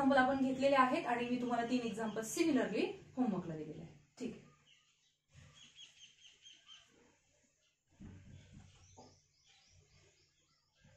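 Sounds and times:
soft low bumps: 8.0s - 9.1s.

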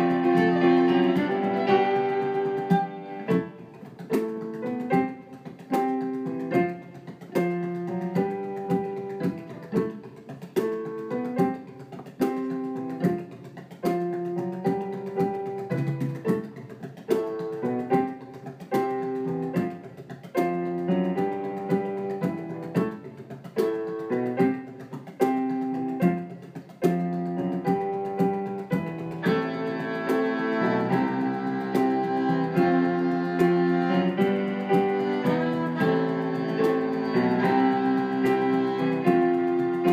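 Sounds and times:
fiddle: 0.0s - 3.5s
frame drum beats: 0.0s - 39.9s
keyboard piano: 0.0s - 39.9s.

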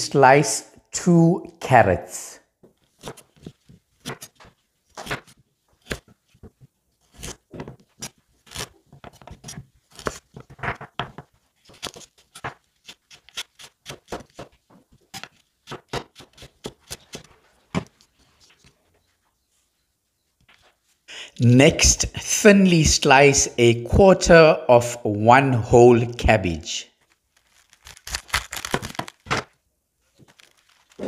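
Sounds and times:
knife slicing carrots on board: 3.0s - 6.1s.

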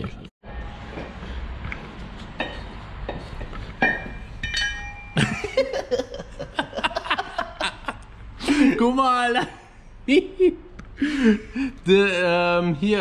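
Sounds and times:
metal engine parts clinking: 2.4s - 5.4s
man laughing: 5.2s - 11.7s.

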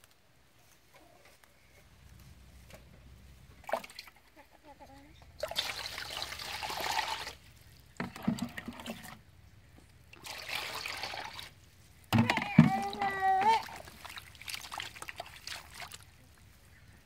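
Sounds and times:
water pouring onto leaves: 5.4s - 7.5s, 10.2s - 11.6s, 13.0s - 16.4s.

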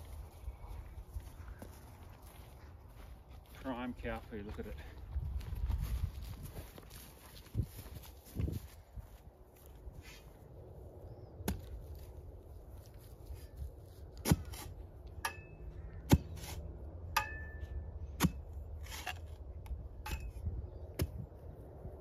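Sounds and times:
metal spade chopping soil: 14.2s - 21.2s.

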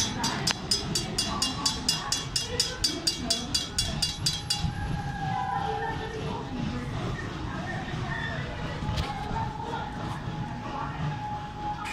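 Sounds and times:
railroad crossing bell ringing: 0.0s - 4.8s.

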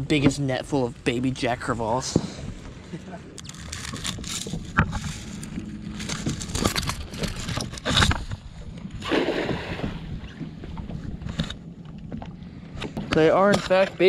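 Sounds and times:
water splashes: 9.0s - 10.4s.

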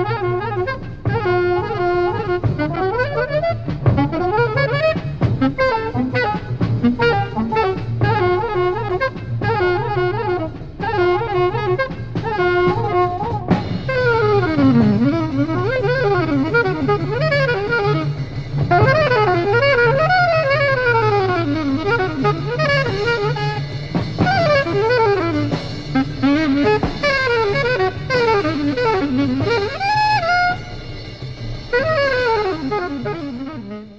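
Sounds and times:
saxophone playing fast runs: 0.0s - 33.9s.

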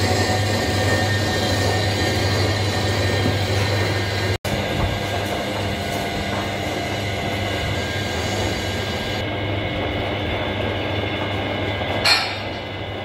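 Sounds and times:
metal lathe running: 0.0s - 13.0s.

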